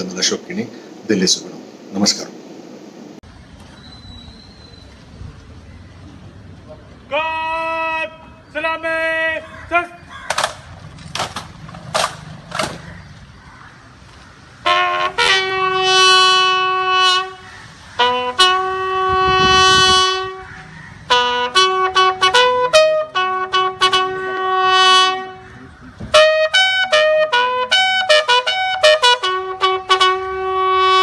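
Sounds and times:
bugle call: 0:07.1 - 0:10.6, 0:14.6 - 0:31.0
sharp knocks: 0:10.2 - 0:12.9.

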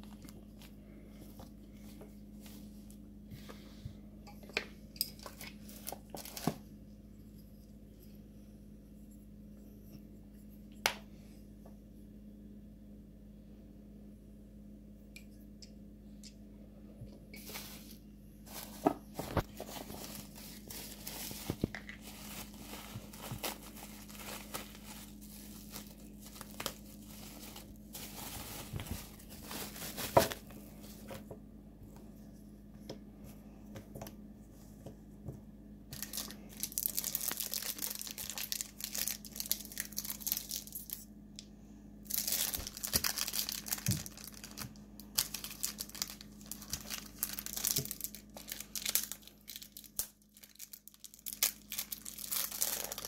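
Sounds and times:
plastic packaging crinkling: 0:05.2 - 0:06.6, 0:17.4 - 0:31.2, 0:35.9 - 0:41.0, 0:42.0 - 0:53.0.

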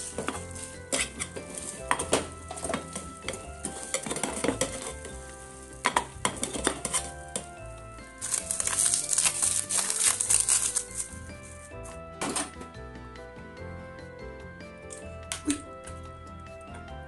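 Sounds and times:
egg simmering and sizzling: 0:00.0 - 0:11.2.

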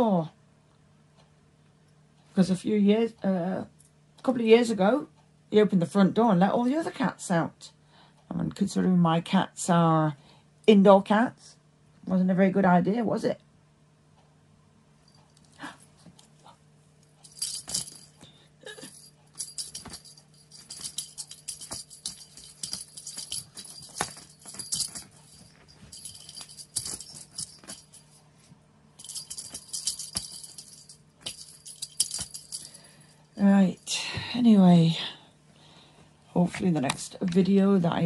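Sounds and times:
faint low hum: 0:00.0 - 0:38.0
small bells jingling: 0:17.2 - 0:28.2, 0:29.0 - 0:33.9.

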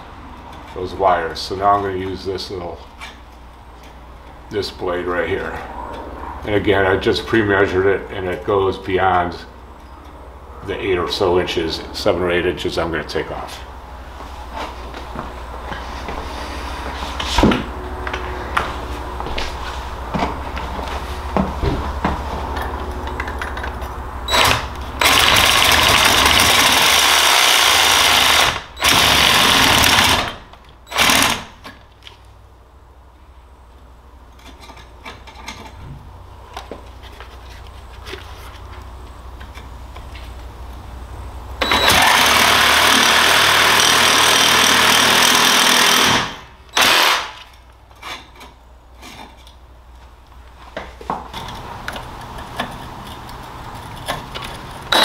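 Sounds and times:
reciprocating saw cutting: 0:41.9 - 0:47.4.

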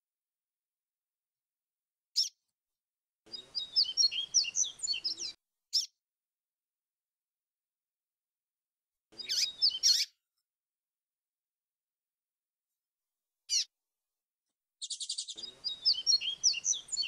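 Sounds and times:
bird singing warbled phrase: 0:03.3 - 0:05.9, 0:09.2 - 0:10.1, 0:14.8 - 0:17.0.

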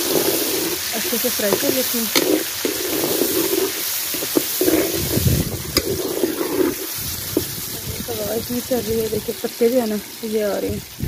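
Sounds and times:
metal spoon scraping a pot: 0:00.0 - 0:07.6
vegetables sizzling in hot fat: 0:00.0 - 0:11.0
wind rumbling on microphone: 0:01.5 - 0:09.4, 0:10.6 - 0:11.0.

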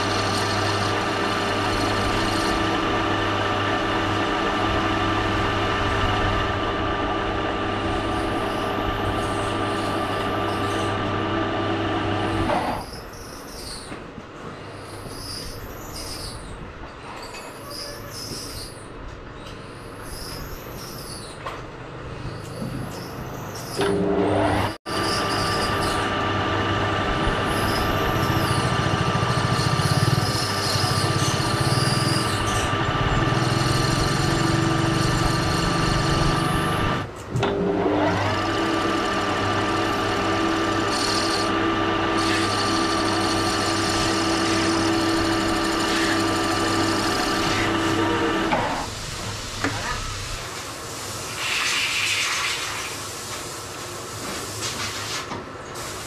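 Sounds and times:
lathe hum with high whine: 0:00.0 - 0:13.6, 0:22.5 - 0:50.5.

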